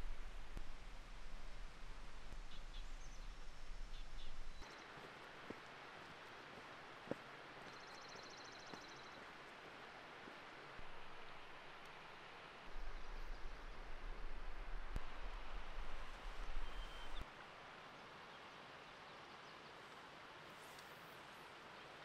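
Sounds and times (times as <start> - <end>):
lake ambience hush: 0.0 - 17.3
wind rumbling on microphone: 12.6 - 17.2.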